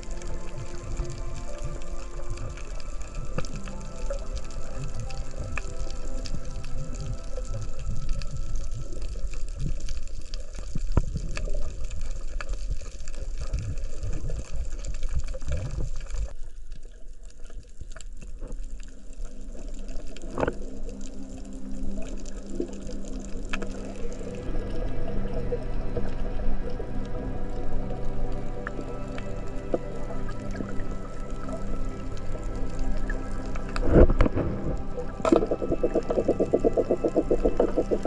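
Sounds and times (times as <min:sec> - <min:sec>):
water sloshing underwater: 0:00.0 - 0:38.0
steady low tones: 0:20.8 - 0:38.0.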